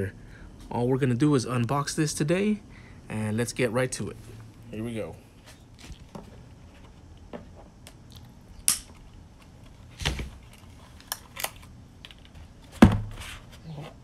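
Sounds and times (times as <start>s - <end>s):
plastic case laid down knock: 12.8s - 13.2s.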